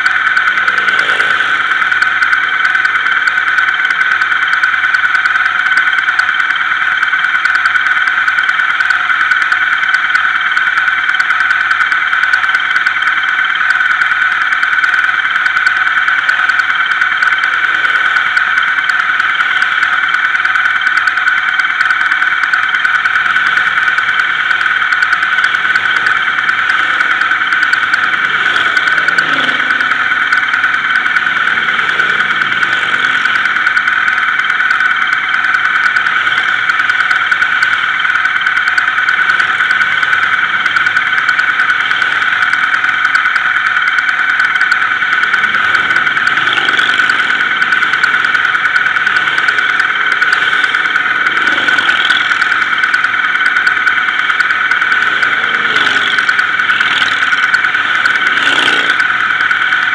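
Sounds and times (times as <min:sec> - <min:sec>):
motorcycles passing: 0:00.0 - 0:04.6, 0:17.2 - 0:18.4, 0:25.0 - 0:37.8, 0:44.5 - 0:59.9
high-pitched whine: 0:00.0 - 0:59.9.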